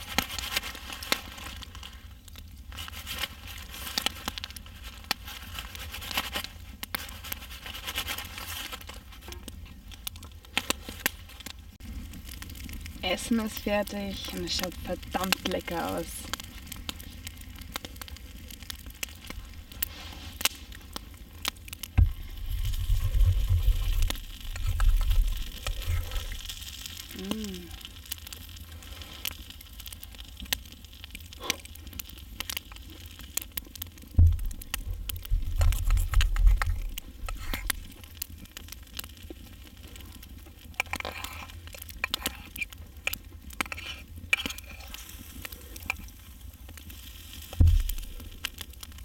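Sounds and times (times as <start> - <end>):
faint crackling: 0.0 - 49.0
dull low thuds: 22.0 - 23.6, 34.2 - 35.6, 47.6 - 48.2
knife and fork scraping a pan: 40.8 - 42.6, 43.6 - 45.0.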